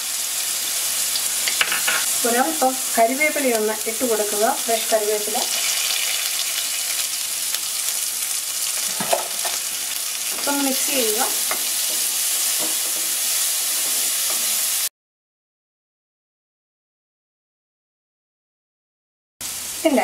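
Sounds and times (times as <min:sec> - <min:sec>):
sizzling in hot oil: 0:00.0 - 0:14.9, 0:19.4 - 0:20.0.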